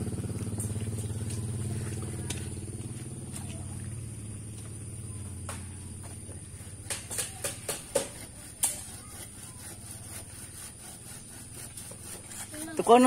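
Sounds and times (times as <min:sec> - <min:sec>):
low engine hum: 0:00.0 - 0:08.3
sharp clicks and knocks: 0:06.8 - 0:08.9.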